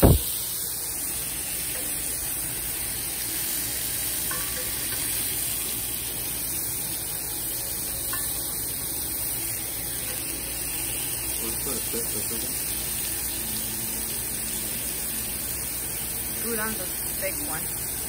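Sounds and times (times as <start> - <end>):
meat sizzling on a grill: 0.0 - 18.0.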